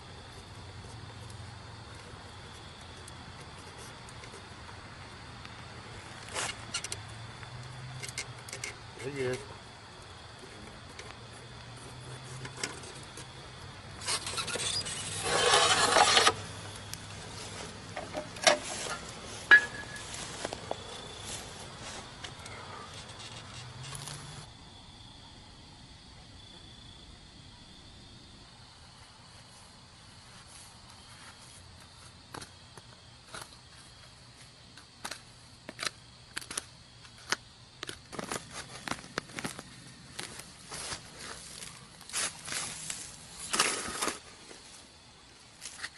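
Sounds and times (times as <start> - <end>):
hand tool scraping dry soil: 14.0 - 16.5, 17.2 - 20.6, 40.2 - 44.3.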